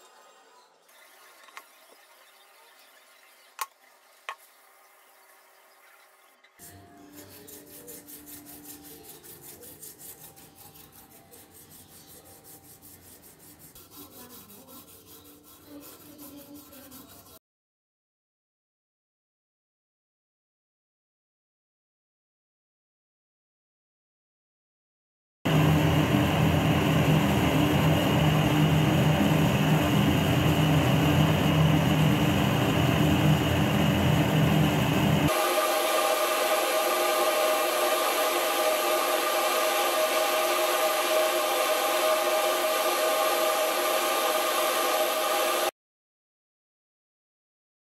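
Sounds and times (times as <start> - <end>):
hand file scraping metal: 6.6 - 17.4
gas torch roaring: 25.5 - 45.7.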